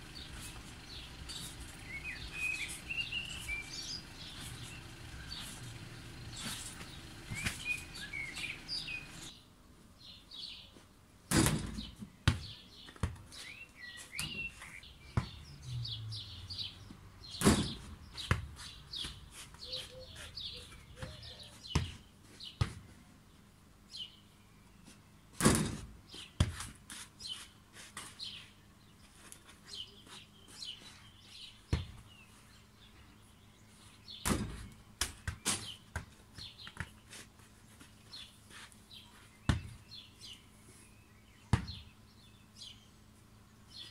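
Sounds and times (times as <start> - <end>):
small birds chirping: 0.0 - 11.0, 11.8 - 25.4, 26.0 - 43.9
football thudding on ground: 17.4 - 18.5, 25.4 - 26.5, 34.2 - 36.1, 41.5 - 41.8.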